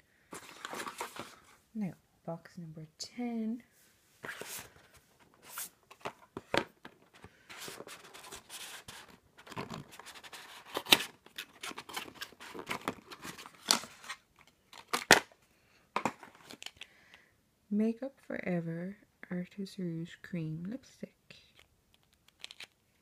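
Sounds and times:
cardboard scraping and rubbing: 4.2 - 6.6, 7.5 - 14.2.

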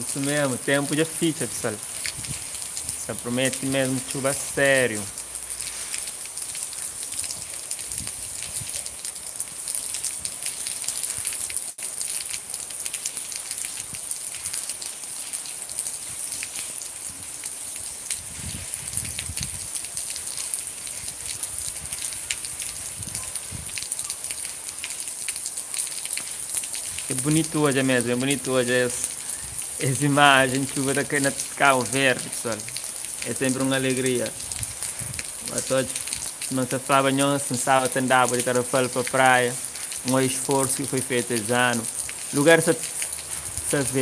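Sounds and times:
rain falling: 0.0 - 44.0.

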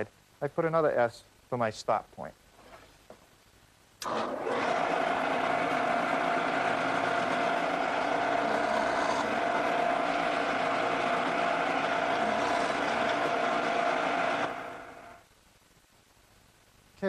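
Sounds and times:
drill press drilling wood: 4.0 - 15.2.

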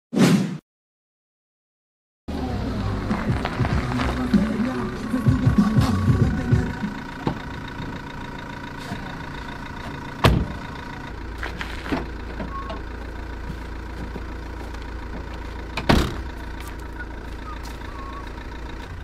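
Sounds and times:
van engine idling: 2.3 - 19.0
rear door clunk opening: 5.8 - 8.1, 9.8 - 10.9, 11.8 - 13.0, 15.1 - 16.4
door slamming shut: 10.2 - 10.6, 15.8 - 16.3.

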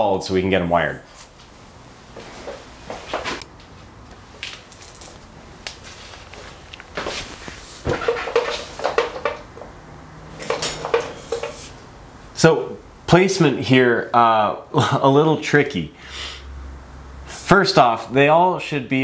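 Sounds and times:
handling knocks and clicks: 6.3 - 9.8, 10.4 - 11.7.

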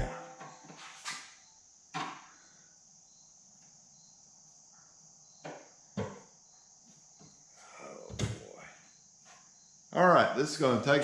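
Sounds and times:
crickets chirring: 0.0 - 11.0.

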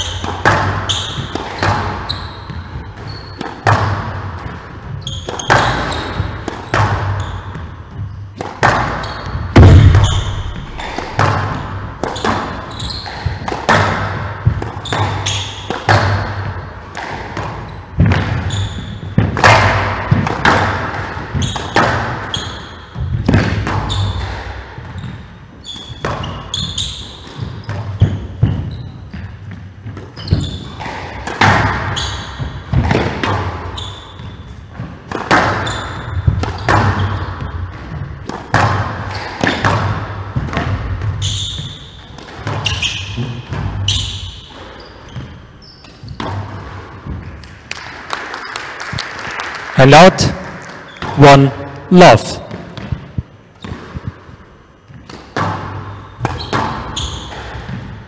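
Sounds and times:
shoes squeaking on wooden floor: 0.0 - 13.6, 17.6 - 19.2, 21.3 - 31.0, 31.9 - 32.9, 33.6 - 38.2, 40.4 - 47.4, 50.7 - 58.0
squash ball hits echoing: 0.0 - 49.5, 50.2 - 58.0.

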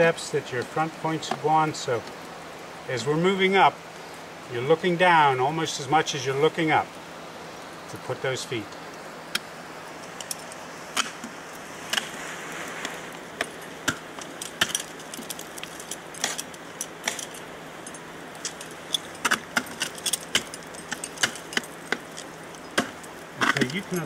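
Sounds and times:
steady hiss: 0.0 - 24.0
carabiners clinking: 10.0 - 10.7, 13.4 - 24.0.

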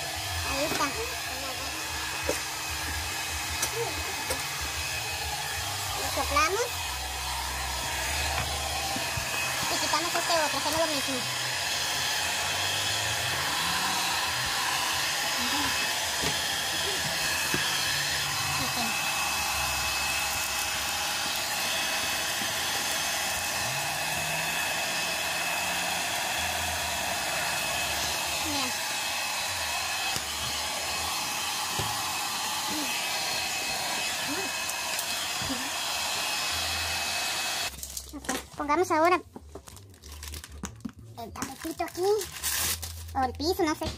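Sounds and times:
hot-air blower running: 0.0 - 37.7.

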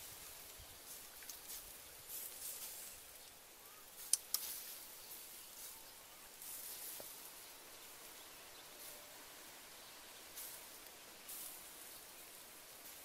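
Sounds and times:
sharp clicks: 4.0 - 4.6
hiss: 10.0 - 13.0.

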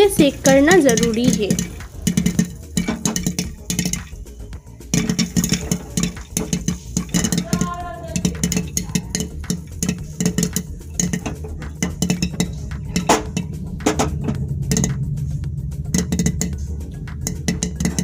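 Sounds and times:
kernels rattling in pot: 0.0 - 15.0, 15.8 - 18.0
popcorn popping: 0.0 - 15.2, 15.8 - 18.0.

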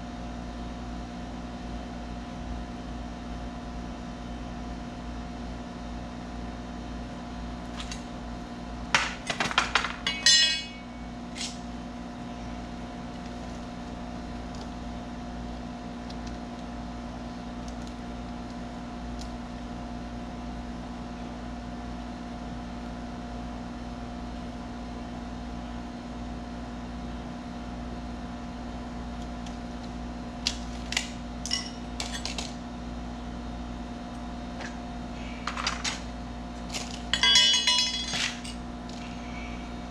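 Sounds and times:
steady mechanical hum: 0.0 - 39.9
tools clinking and clattering: 9.6 - 11.6, 31.4 - 32.5, 36.7 - 38.6.

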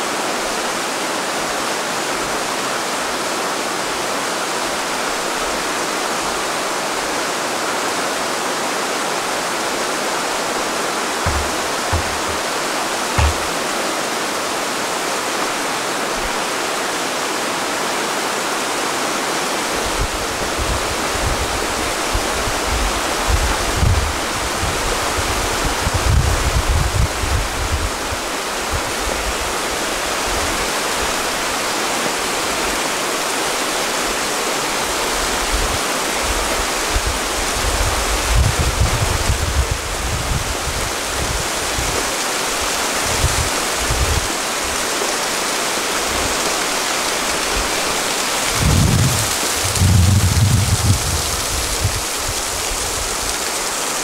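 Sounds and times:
river rushing over rocks: 0.0 - 23.3, 28.1 - 54.0
wind rumble on microphone: 11.3 - 12.5, 13.2 - 13.6, 19.8 - 29.5, 35.3 - 42.1, 43.0 - 44.8, 48.4 - 53.4.

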